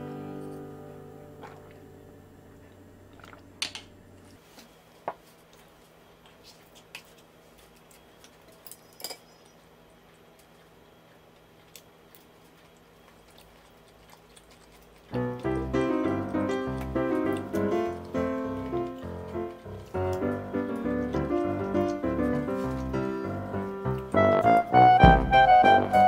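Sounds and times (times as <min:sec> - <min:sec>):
soft chewing: 0:04.3 - 0:24.8
music note: 0:23.8 - 0:26.0.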